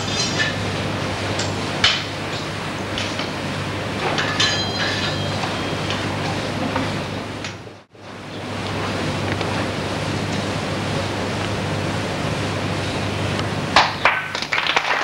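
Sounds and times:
applause: 0:13.8 - 0:15.0.

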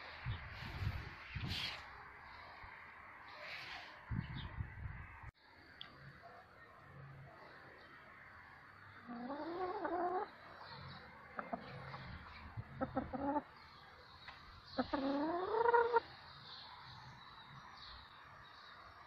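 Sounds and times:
hen calling: 0:09.0 - 0:10.3, 0:14.8 - 0:16.1
hen clucking: 0:09.0 - 0:13.5, 0:14.8 - 0:16.1.

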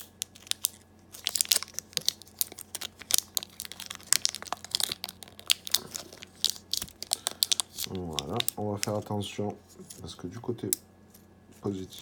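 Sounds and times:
plastic wrap crinkling and tearing: 0:00.0 - 0:09.2.

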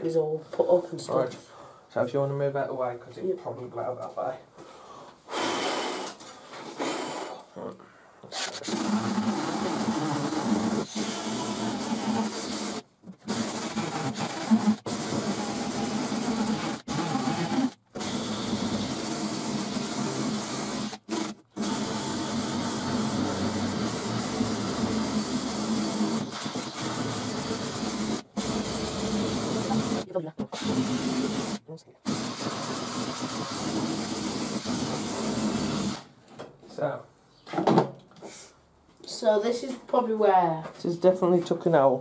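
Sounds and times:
drill wire brush grinding metal: 0:08.3 - 0:36.0.

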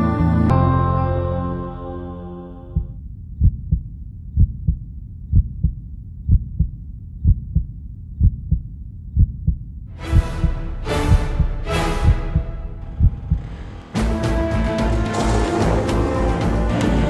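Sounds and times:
film music: 0:00.0 - 0:02.9, 0:09.9 - 0:17.0
heartbeat thumps: 0:02.6 - 0:14.3.

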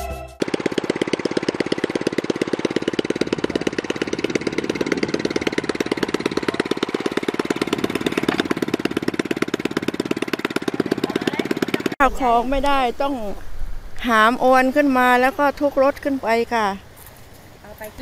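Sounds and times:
small engine idling: 0:00.4 - 0:12.0.

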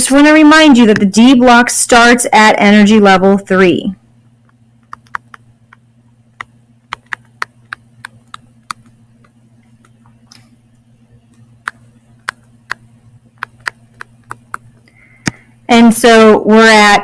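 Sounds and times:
low electrical hum: 0:00.0 - 0:17.0
stylus clicking on tablet screen: 0:04.4 - 0:05.8, 0:06.4 - 0:10.5, 0:11.3 - 0:15.4.

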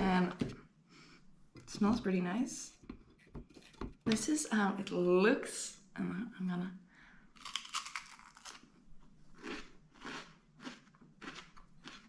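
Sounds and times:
bite into crispbread: 0:07.4 - 0:08.8, 0:09.4 - 0:12.0
crunchy chewing: 0:07.4 - 0:12.0.

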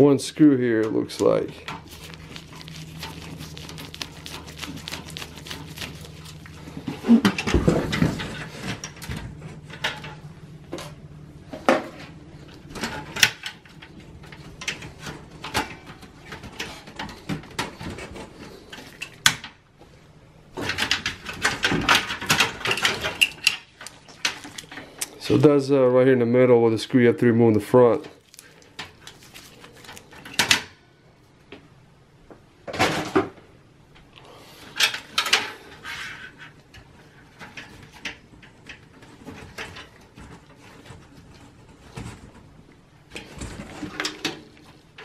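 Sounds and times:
clicks and metal clanks: 0:07.2 - 0:11.0, 0:11.6 - 0:19.6, 0:20.6 - 0:25.1, 0:43.1 - 0:45.0.

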